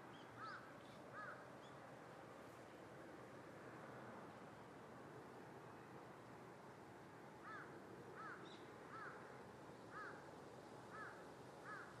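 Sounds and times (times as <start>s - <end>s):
bird calling: 0.0s - 1.8s
faint steady hiss: 0.0s - 12.0s.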